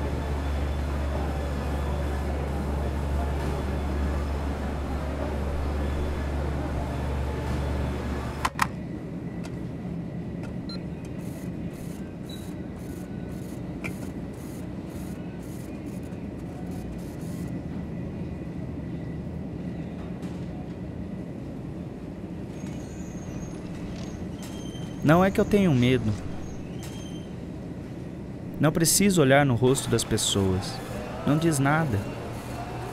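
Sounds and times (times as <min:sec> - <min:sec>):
supermarket hum and rumble: 0:00.0 - 0:32.9.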